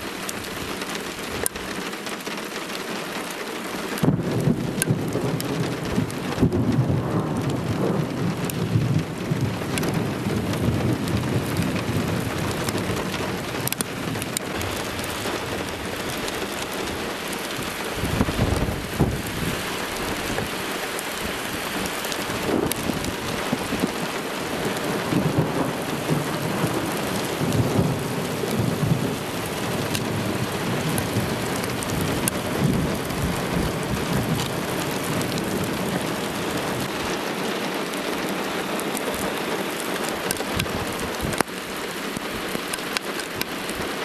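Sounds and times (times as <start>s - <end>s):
rain falling: 0.0s - 44.0s
thunder rumbling: 4.0s - 20.6s, 21.2s - 37.5s.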